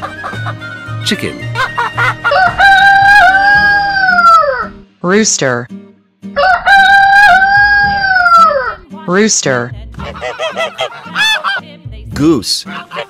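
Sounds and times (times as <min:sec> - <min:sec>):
rooster crowing: 0:02.0 - 0:04.7, 0:06.4 - 0:08.8, 0:10.1 - 0:11.6.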